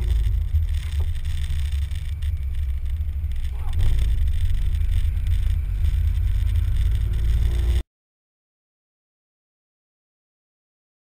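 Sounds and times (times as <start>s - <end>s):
car engine low rumble: 0.0s - 7.8s.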